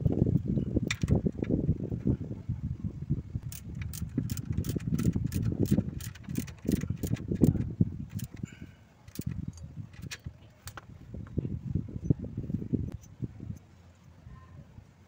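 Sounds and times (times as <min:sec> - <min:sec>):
wind rumble on microphone: 0:00.0 - 0:15.0
ratchet wrench clicking: 0:03.5 - 0:08.4, 0:09.1 - 0:10.8.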